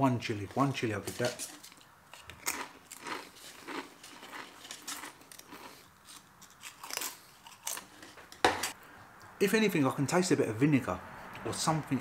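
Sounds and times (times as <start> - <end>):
crisps being bitten and chewed: 1.2 - 8.0.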